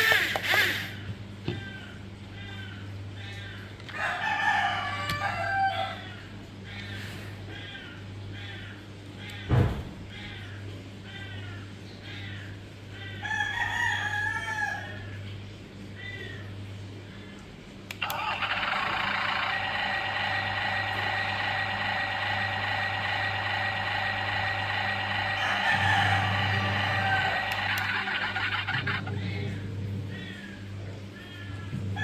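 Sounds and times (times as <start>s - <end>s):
electronic toy engine sound: 0.0s - 1.0s, 17.9s - 30.4s
rooster crowing: 3.9s - 6.2s, 13.2s - 15.1s, 18.0s - 29.1s.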